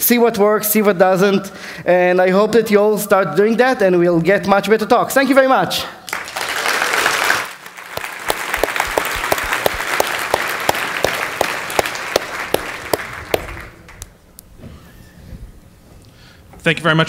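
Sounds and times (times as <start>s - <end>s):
audience applauding: 6.1s - 14.1s.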